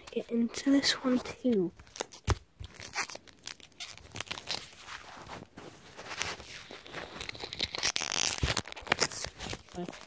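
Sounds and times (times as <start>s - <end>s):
foil wrapper crinkling and tearing: 1.8s - 5.3s, 6.0s - 10.0s.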